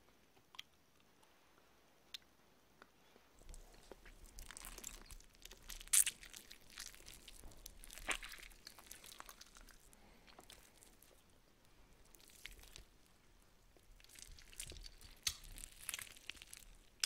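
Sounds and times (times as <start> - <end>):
food crunching as chewed: 3.4 - 17.0.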